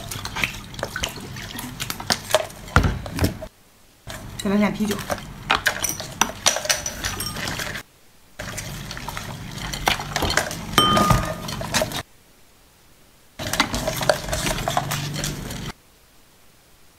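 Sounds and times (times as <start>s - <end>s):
liquid pouring and splashing: 0.0s - 3.3s, 4.9s - 7.8s, 8.4s - 12.0s
glass and dish clinks: 5.8s - 7.8s, 10.8s - 11.7s.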